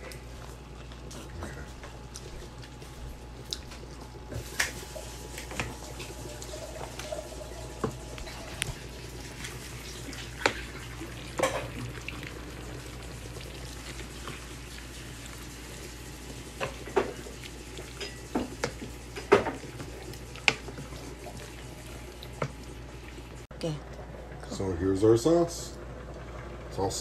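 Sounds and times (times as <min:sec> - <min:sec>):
cooking hiss: 0:04.3 - 0:23.5
utensil stirring food in pan: 0:04.3 - 0:23.5.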